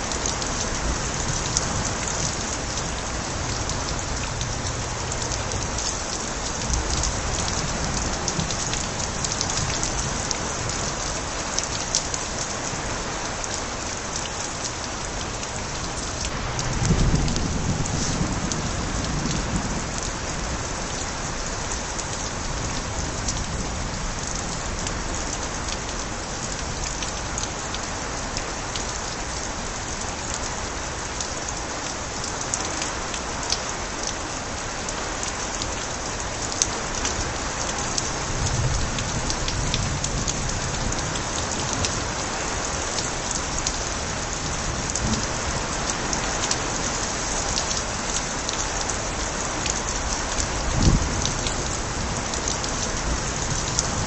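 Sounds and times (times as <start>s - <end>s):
heavy rain: 0.0s - 54.0s
water overflowing from gutters: 0.0s - 54.0s
low rumble of thunder: 16.3s - 21.5s, 38.0s - 42.3s, 44.1s - 46.2s, 50.4s - 54.0s.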